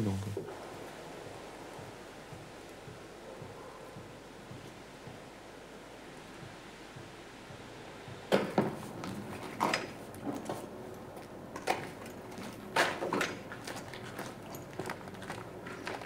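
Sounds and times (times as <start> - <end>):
faint outdoor hush: 0.0 - 11.5
knocks and clatter of handling: 11.5 - 16.0.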